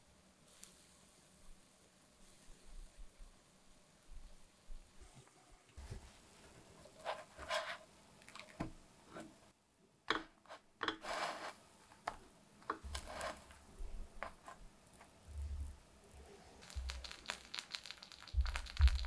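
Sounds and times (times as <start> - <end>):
spatula scraping a frying pan: 10.4 - 11.6, 12.8 - 13.6.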